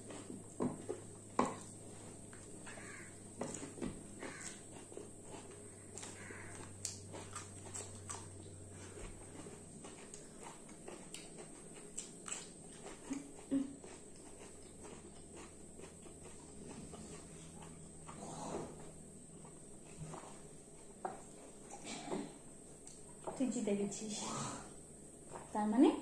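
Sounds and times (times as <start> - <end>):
lip smacks and chewing: 0.0 - 18.2.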